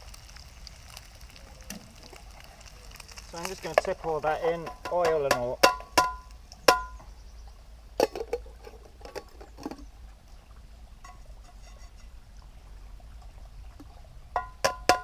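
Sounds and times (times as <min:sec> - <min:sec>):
pan scraping: 0:03.1 - 0:07.0, 0:08.0 - 0:09.9, 0:11.0 - 0:12.2
frying pan ringing against pot: 0:04.5 - 0:07.0, 0:14.4 - 0:15.0
metal cookware clanking: 0:04.6 - 0:07.0, 0:11.0 - 0:12.2, 0:14.4 - 0:15.0.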